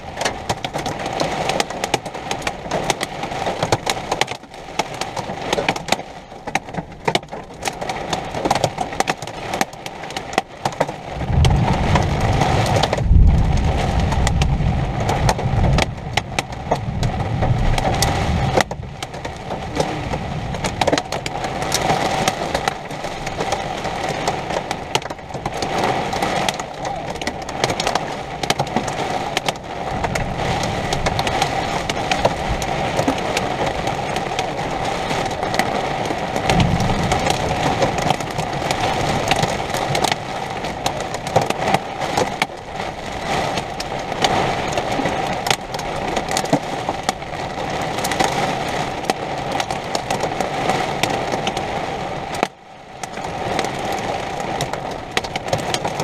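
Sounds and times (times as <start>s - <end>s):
steady rain: 0.0s - 56.0s
thunder rumbling: 11.1s - 29.1s, 36.1s - 40.0s.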